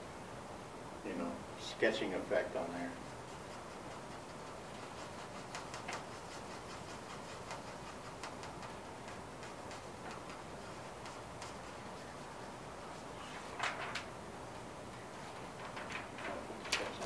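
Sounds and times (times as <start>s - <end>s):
low room hiss: 0.0s - 17.0s
pencil scratching on paper: 2.4s - 13.6s.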